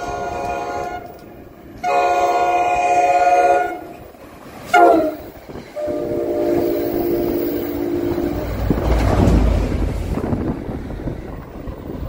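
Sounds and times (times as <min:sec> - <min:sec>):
train horn chord: 0:00.0 - 0:01.2, 0:01.8 - 0:03.9, 0:04.7 - 0:09.0
train rumbling: 0:00.0 - 0:12.0.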